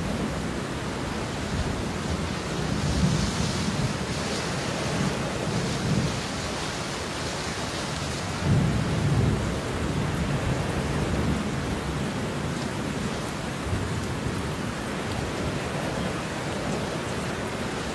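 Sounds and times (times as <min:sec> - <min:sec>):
heavy rain: 0:00.0 - 0:17.9
thunder rumbling: 0:08.3 - 0:12.0.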